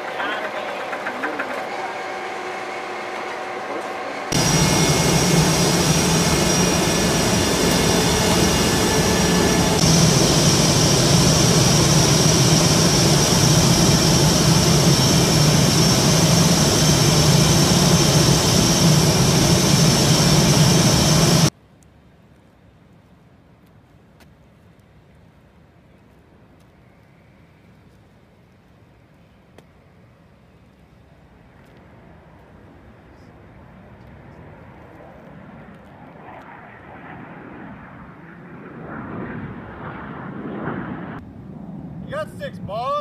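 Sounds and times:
jet engine turbine whine: 0.0s - 21.5s, 31.0s - 43.0s.

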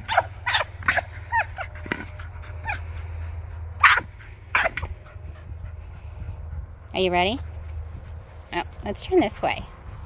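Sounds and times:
dog yipping: 0.0s - 2.8s, 3.8s - 4.9s
dog whining: 0.0s - 2.9s.

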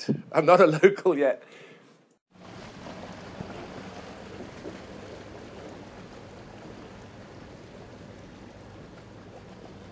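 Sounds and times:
running water rushing: 2.3s - 9.9s
low steady hum: 2.4s - 9.9s.

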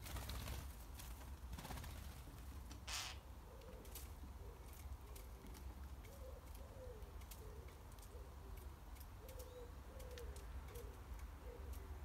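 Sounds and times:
wood pigeon cooing: 3.4s - 12.0s.

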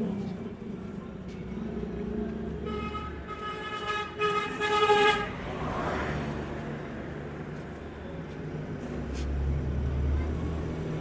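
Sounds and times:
road traffic engine rumble: 0.0s - 11.0s
vehicle horn: 2.6s - 5.4s.

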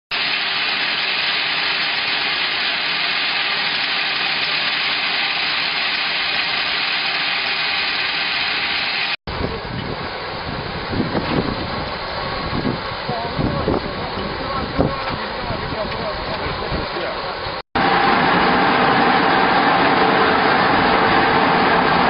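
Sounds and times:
grain pouring hiss: 0.1s - 9.2s, 17.8s - 22.0s
rough machine rumble: 0.1s - 22.0s.

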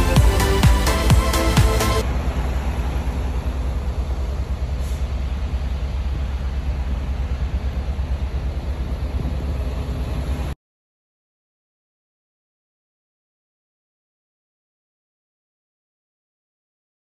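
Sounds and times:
truck engine and road noise: 0.0s - 10.6s.

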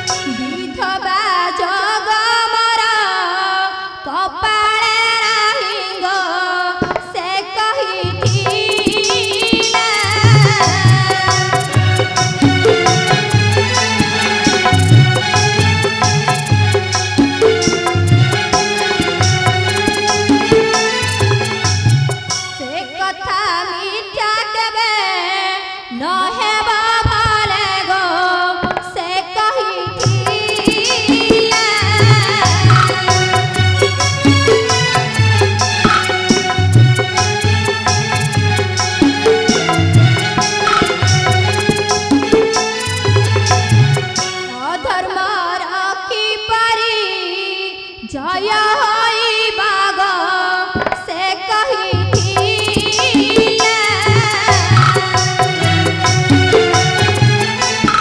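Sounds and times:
instrumental accompaniment: 0.0s - 1.8s, 8.0s - 23.4s, 29.8s - 45.9s, 51.9s - 58.0s
woman singing: 0.0s - 16.6s, 22.6s - 35.2s, 44.4s - 55.9s
drum strokes: 8.1s - 22.6s, 30.0s - 44.8s, 52.0s - 58.0s.

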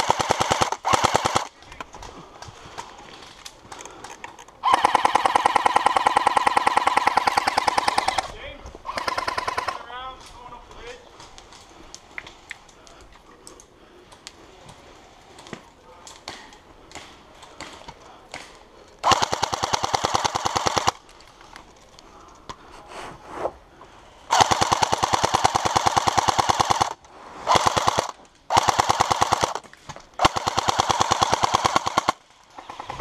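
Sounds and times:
airsoft gun firing full auto: 0.0s - 1.5s, 4.6s - 8.3s, 8.9s - 9.8s, 19.0s - 21.0s, 24.3s - 29.6s, 30.2s - 33.0s.

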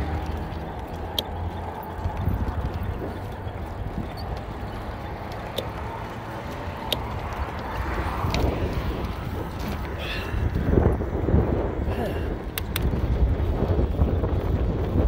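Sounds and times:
bike rolling on concrete: 0.0s - 15.0s
wind buffeting microphone: 0.0s - 15.0s
sharp clicks of bike mount: 5.4s - 5.8s, 6.8s - 7.4s, 12.5s - 13.1s.

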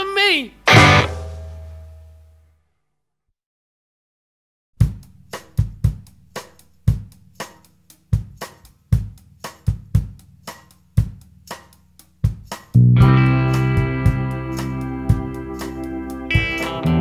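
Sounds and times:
drum kit playing rock beat: 0.7s - 1.8s, 4.8s - 17.0s
sustained guitar chords: 0.7s - 2.0s, 12.8s - 17.0s.

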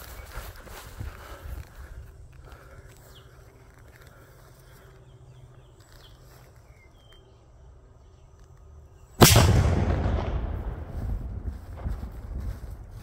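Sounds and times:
firecracker bang: 9.2s - 12.1s
rumbling echo: 9.2s - 13.0s.

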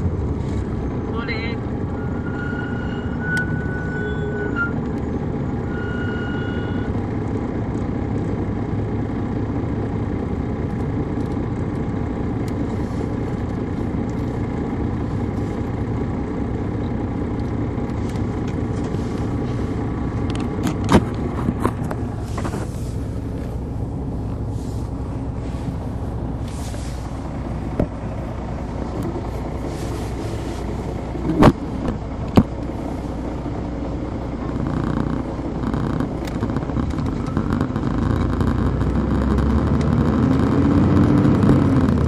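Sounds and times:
diesel engine running: 0.0s - 42.0s
road rumble: 0.0s - 42.0s
high steady beep: 5.6s - 6.9s.

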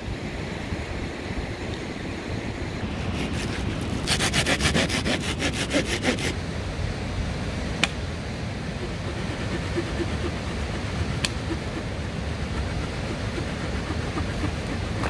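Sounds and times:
mountain stream rushing: 0.0s - 15.0s
hand saw cutting a branch: 2.8s - 6.4s, 8.8s - 15.0s.

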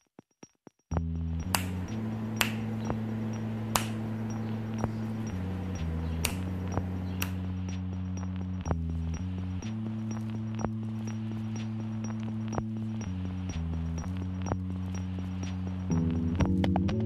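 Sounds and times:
faint steady tick: 0.9s - 16.9s
deep synthesizer chords: 0.9s - 17.0s
sharp snap-like clicks: 1.4s - 3.0s, 3.7s - 7.6s.

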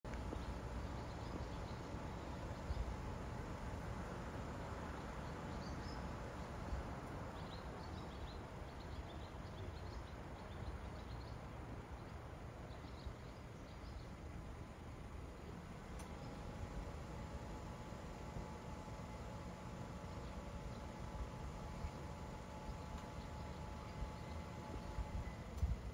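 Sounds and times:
low street rumble: 0.0s - 25.9s
small birds chirping: 0.1s - 25.9s.

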